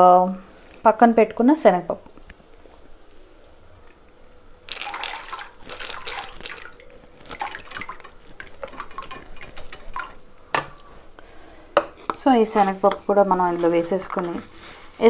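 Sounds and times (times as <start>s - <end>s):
lentils splashing into water: 4.7s - 10.2s.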